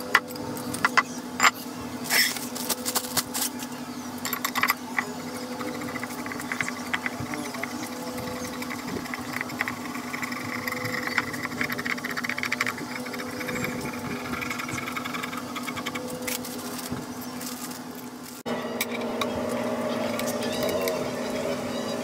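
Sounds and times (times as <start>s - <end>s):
low machine hum: 0.0s - 22.0s
ball screw rattling: 4.3s - 16.1s.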